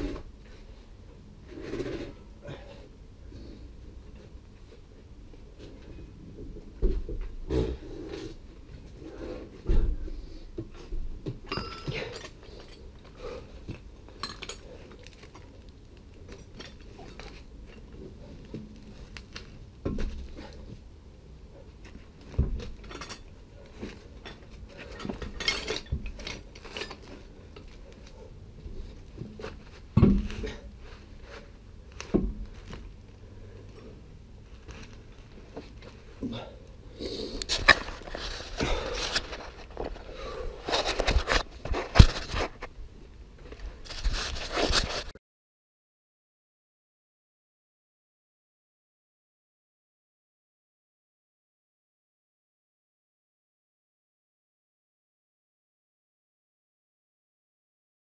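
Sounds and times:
metallic clinks of tools: 0:11.5 - 0:12.4.

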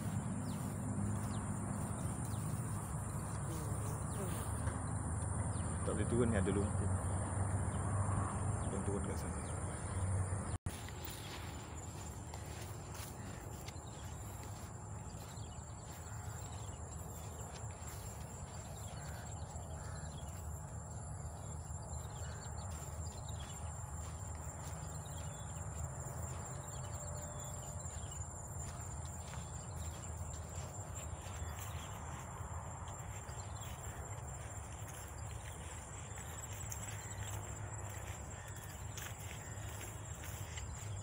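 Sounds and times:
footsteps on dirt: 0:00.0 - 0:05.7, 0:10.6 - 0:41.0
insects chirring: 0:00.0 - 0:41.0.

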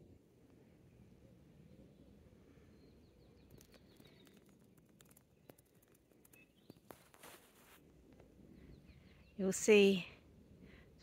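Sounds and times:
faint low rumble: 0:00.0 - 0:11.0
faint bird chirps: 0:00.8 - 0:07.7, 0:08.5 - 0:10.0.

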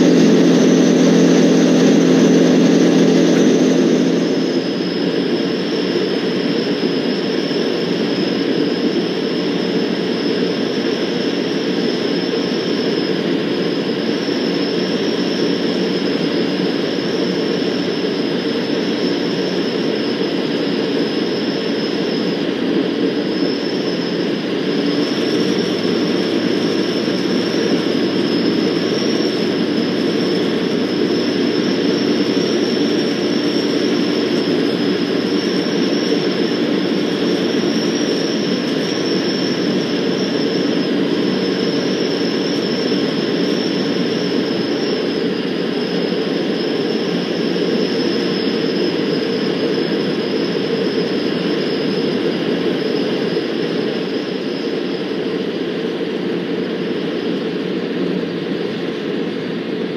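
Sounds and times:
airflow noise: 0:00.0 - 0:06.0
high whine: 0:00.0 - 0:59.9
propeller plane engine droning: 0:00.0 - 0:59.9.

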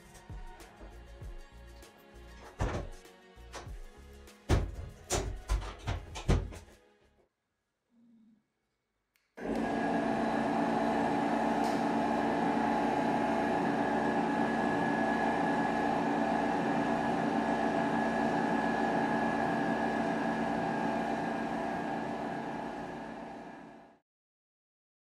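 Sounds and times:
air compressor running: 0:09.4 - 0:24.0.

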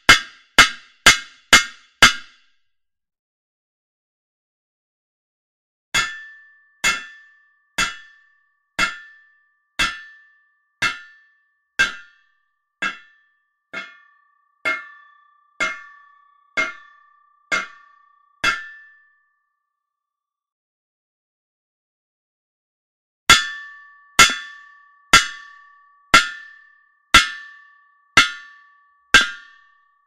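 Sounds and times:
hammer striking metal: 0:00.0 - 0:02.4, 0:06.0 - 0:09.2, 0:09.8 - 0:10.2, 0:10.8 - 0:11.2, 0:11.8 - 0:12.2, 0:12.8 - 0:13.2, 0:13.8 - 0:19.0, 0:23.3 - 0:29.7.

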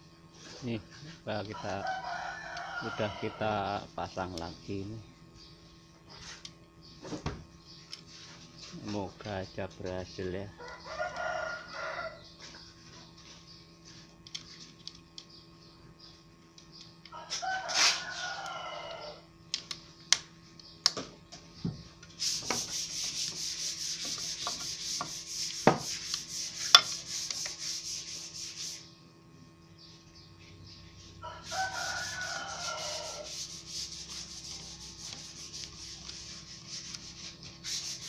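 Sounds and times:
rooster crowing: 0:01.5 - 0:03.9, 0:10.6 - 0:12.3, 0:17.1 - 0:19.3, 0:31.2 - 0:33.4
rhythmic scraping: 0:22.2 - 0:28.8, 0:31.4 - 0:38.0.

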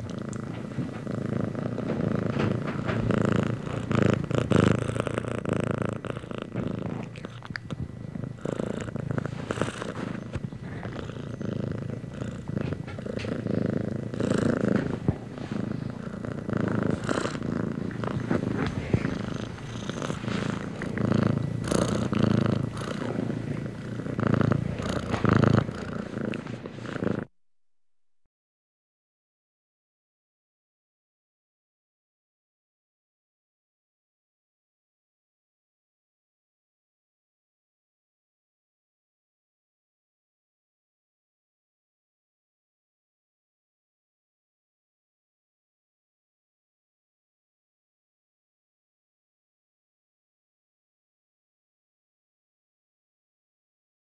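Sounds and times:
cat purring: 0:00.0 - 0:27.3.

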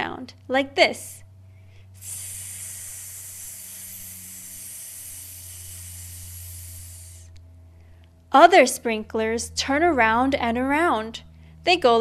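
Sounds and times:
lawn sprinkler spray hissing: 0:02.0 - 0:07.4.

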